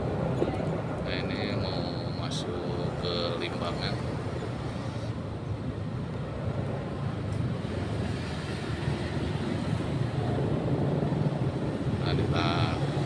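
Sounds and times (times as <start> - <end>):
wind noise on microphone: 4.5 - 13.0.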